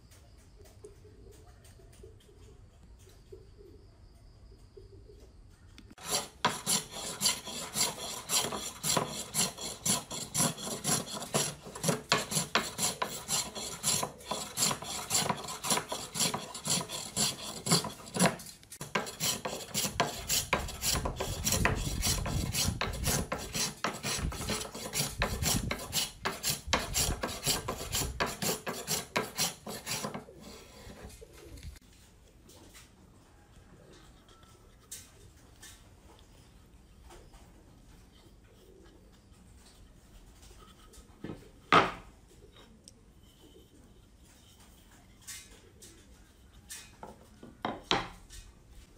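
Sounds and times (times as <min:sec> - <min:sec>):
hand plane shaving wood: 0:06.0 - 0:31.8.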